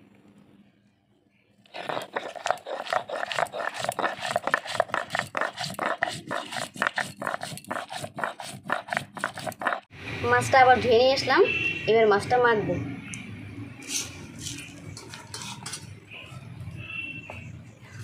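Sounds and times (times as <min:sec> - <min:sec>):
stone rasping on stone: 0:01.7 - 0:09.9.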